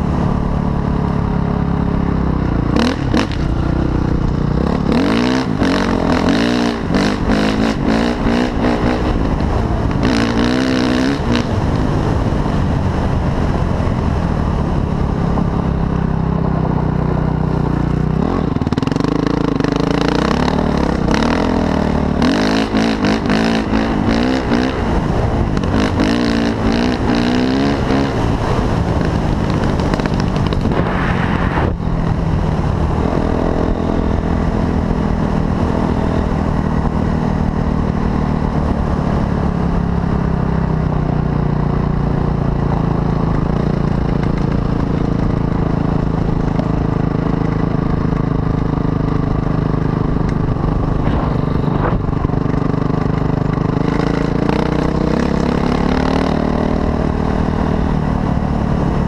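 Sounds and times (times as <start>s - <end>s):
dirt bike engine revving: 2.5s - 12.0s, 18.1s - 37.1s, 50.1s - 59.0s.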